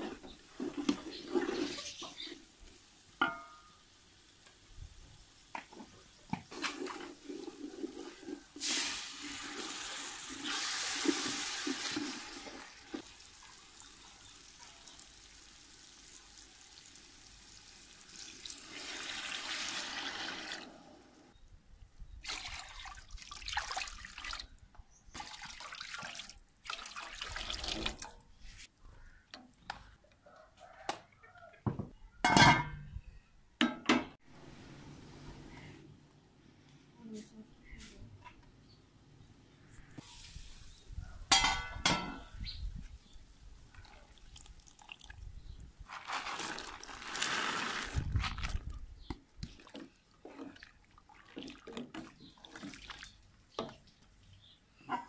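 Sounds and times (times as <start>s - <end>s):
water pouring into pot: 6.5s - 14.1s, 14.9s - 20.7s, 22.2s - 24.4s, 25.2s - 28.1s, 43.8s - 45.2s, 45.9s - 48.7s.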